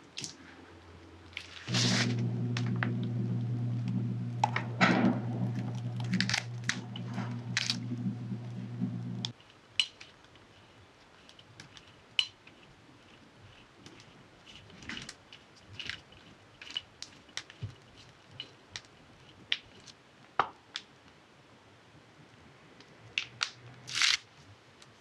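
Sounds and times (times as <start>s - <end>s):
steady low hum: 0.4s - 9.3s
piping bag squishing: 4.4s - 8.0s
bag crinkling: 5.8s - 7.9s.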